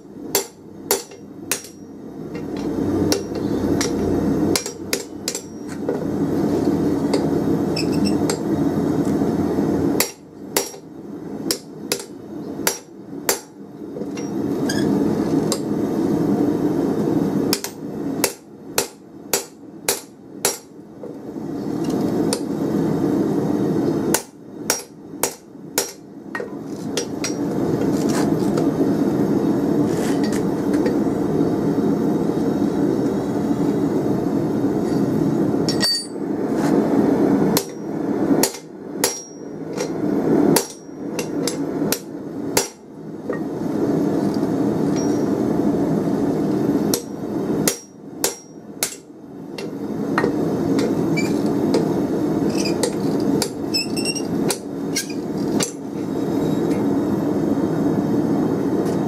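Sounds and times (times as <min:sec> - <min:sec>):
hammer ringing on hot steel: 0:00.3 - 0:05.8, 0:10.0 - 0:10.9, 0:11.5 - 0:14.4, 0:17.5 - 0:20.7, 0:24.1 - 0:27.5, 0:35.7 - 0:36.2, 0:37.6 - 0:39.6, 0:40.6 - 0:43.5, 0:44.9 - 0:45.3, 0:46.9 - 0:50.9.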